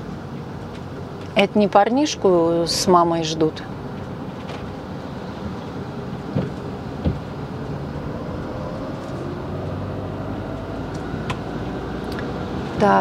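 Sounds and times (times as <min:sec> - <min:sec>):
vehicle engine and road noise: 0:00.0 - 0:13.0.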